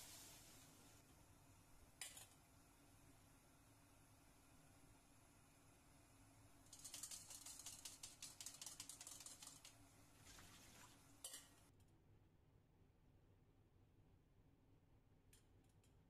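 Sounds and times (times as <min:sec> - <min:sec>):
strainer rattling: 0:06.7 - 0:09.7.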